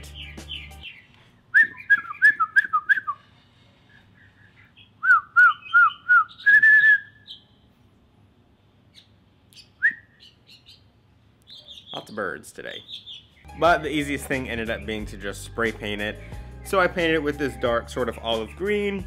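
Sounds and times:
man whistling: 1.5s - 3.2s, 5.0s - 7.2s, 9.8s - 10.1s.

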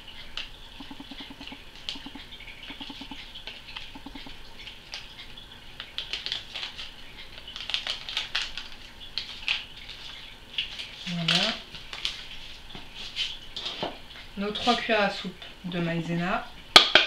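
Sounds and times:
paper sachet crinkling: 5.9s - 12.6s.

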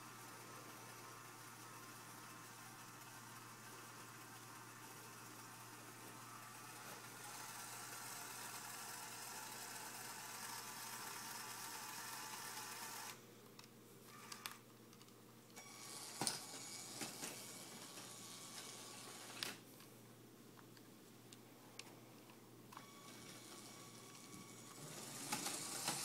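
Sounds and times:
small electric motor whirring: 0.0s - 13.2s, 15.6s - 19.6s, 22.8s - 26.0s.

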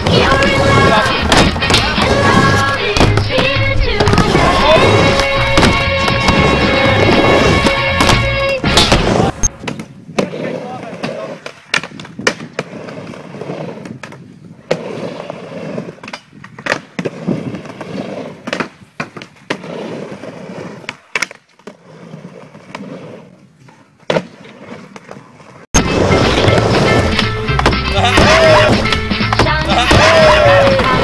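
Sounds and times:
skateboard wheels rumbling: 0.0s - 31.0s
loud music: 25.8s - 31.0s.

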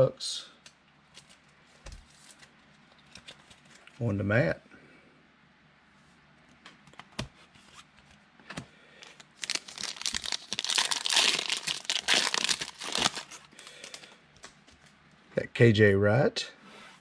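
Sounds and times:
foil wrapper crinkling and tearing: 9.2s - 14.1s.

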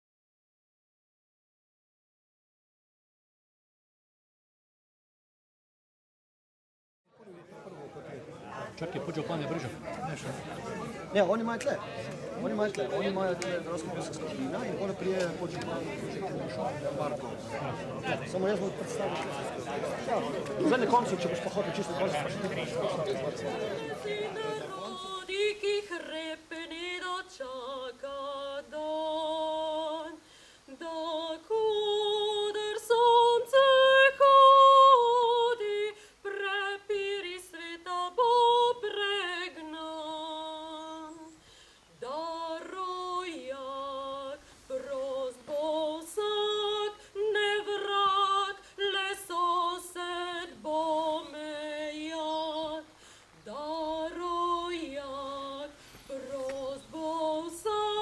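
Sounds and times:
woman singing a cappella: 23.8s - 58.0s.

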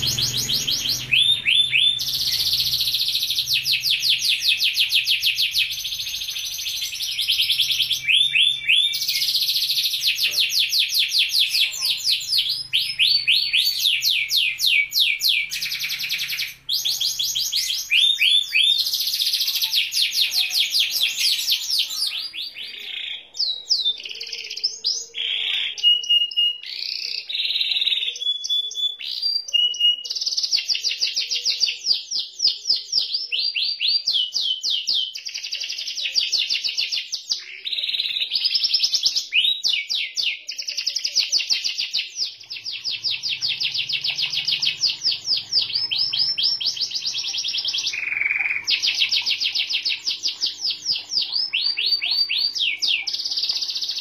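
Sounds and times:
canary singing trills: 0.0s - 54.0s.

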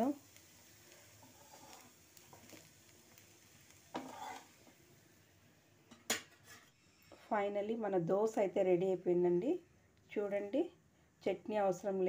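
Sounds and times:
faint sizzle: 0.0s - 12.0s
spatula scraping griddle: 0.9s - 2.7s, 3.7s - 4.7s, 6.1s - 7.3s.

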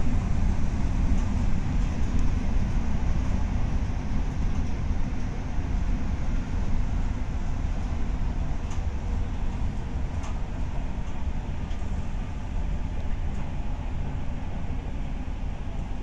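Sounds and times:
train wheels rumbling on rails: 0.0s - 16.0s
faint rail clicks: 8.6s - 8.9s, 9.6s - 11.9s.

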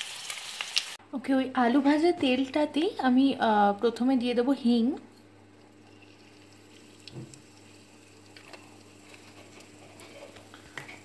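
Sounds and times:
hot oil sizzling: 0.0s - 1.0s, 5.8s - 11.0s.

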